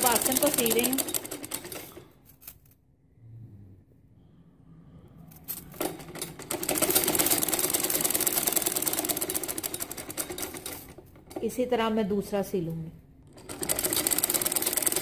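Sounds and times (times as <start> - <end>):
sewing machine ticking: 0.0 - 2.0, 5.8 - 11.6, 13.3 - 15.0.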